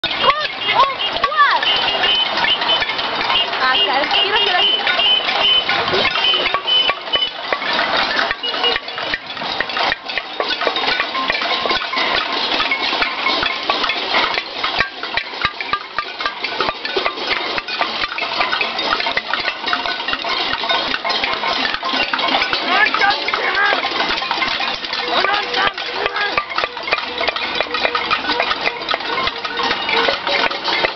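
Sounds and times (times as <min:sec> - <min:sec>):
people banging pots and pans: 0:00.0 - 0:30.9.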